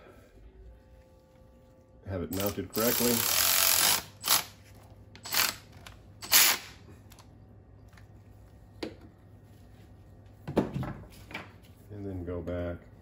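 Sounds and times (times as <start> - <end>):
electric ratchet whirring: 2.3 - 4.6, 5.2 - 6.8.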